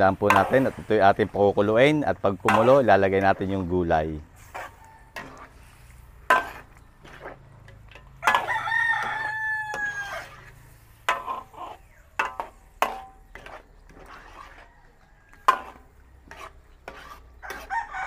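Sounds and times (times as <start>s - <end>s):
metal ladle scraping a wok: 0.0s - 18.0s
rooster crowing: 8.2s - 10.6s, 17.4s - 18.0s.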